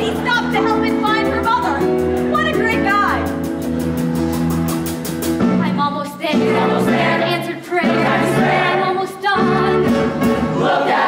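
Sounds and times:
musical accompaniment: 0.0 - 11.0
chorus singing: 6.3 - 11.0.

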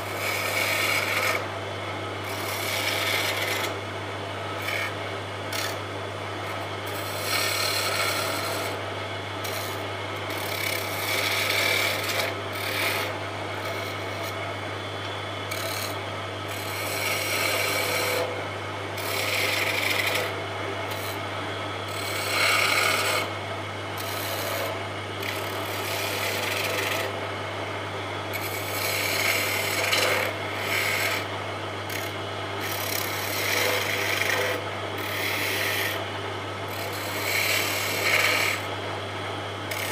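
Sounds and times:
wood lathe turning: 0.0 - 1.5, 2.2 - 3.8, 4.5 - 5.8, 6.4 - 8.8, 9.4 - 14.4, 15.5 - 18.4, 19.0 - 21.2, 21.9 - 23.4, 24.0 - 27.2, 28.3 - 31.3, 31.9 - 36.1, 36.7 - 38.7, 39.7 - 39.9
steady low hum: 0.0 - 39.9.

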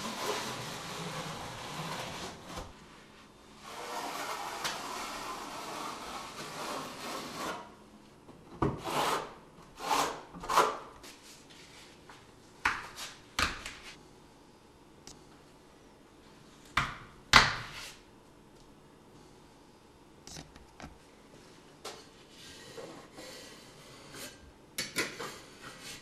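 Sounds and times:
trowel scraping: 0.0 - 2.7.

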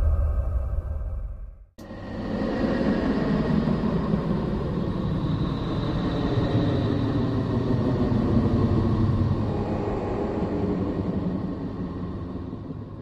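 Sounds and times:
dense rumbling drone: 0.0 - 5.0, 8.3 - 13.0.

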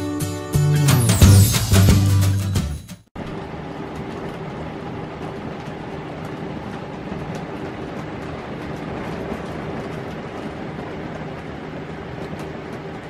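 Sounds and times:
heavy wind: 3.2 - 13.0
rain on a trailer: 3.2 - 13.0.

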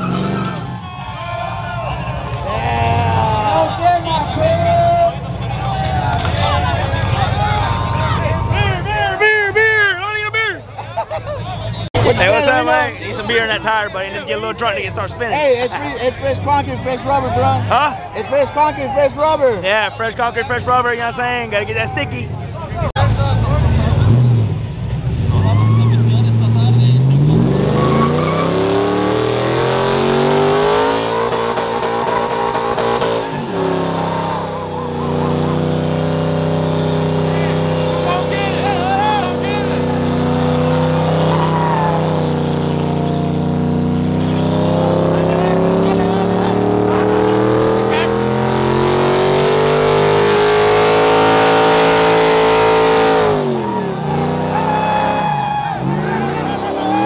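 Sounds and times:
truck engine revving hard: 0.0 - 10.4, 11.6 - 57.0.

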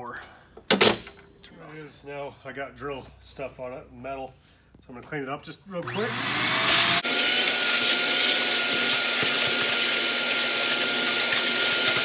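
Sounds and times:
shop vacuum whine: 5.8 - 12.0
vacuum sucking up metal shavings: 5.8 - 12.0.

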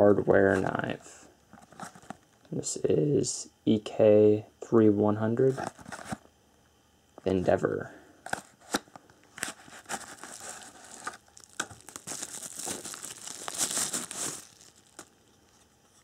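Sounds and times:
plastic wrapping crinkling: 9.4 - 16.0.

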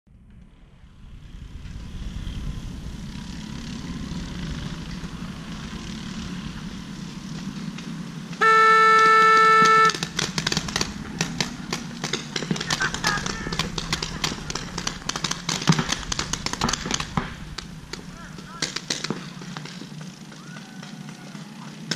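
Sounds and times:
horn blast: 8.4 - 10.4
paintball markers firing: 9.3 - 20.9.

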